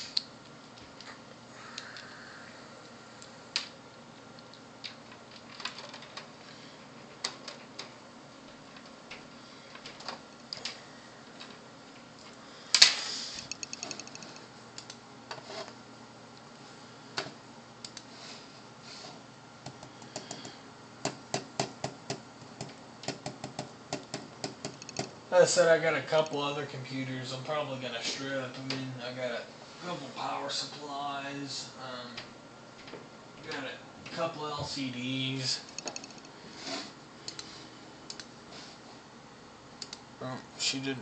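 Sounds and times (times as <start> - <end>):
faint steady hum: 0.0 - 41.0
mouse and keyboard clicks: 13.4 - 15.0, 22.6 - 25.1, 35.7 - 36.3.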